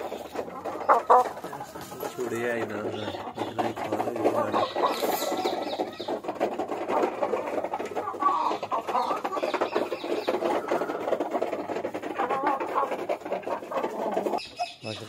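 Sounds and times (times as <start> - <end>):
hens clucking: 0.0 - 15.0.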